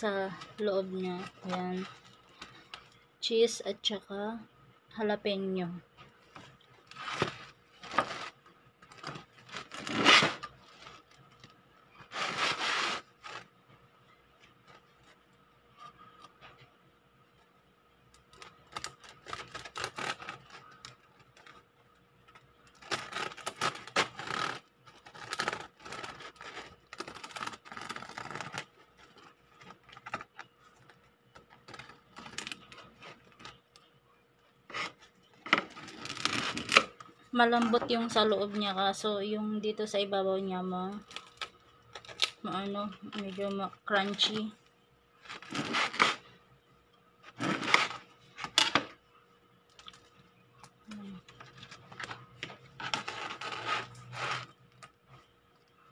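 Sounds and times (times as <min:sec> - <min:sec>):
bread knife sawing crusty loaf: 0:12.1 - 0:13.1, 0:45.4 - 0:46.2.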